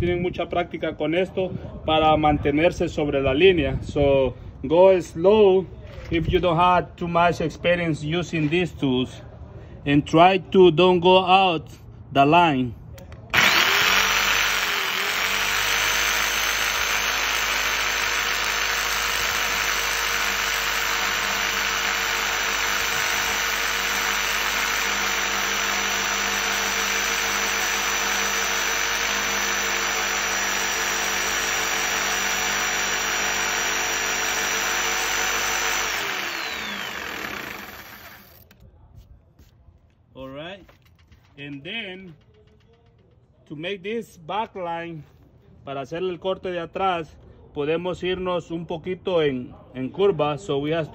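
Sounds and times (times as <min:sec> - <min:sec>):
jigsaw cutting wood: 0:13.3 - 0:38.5.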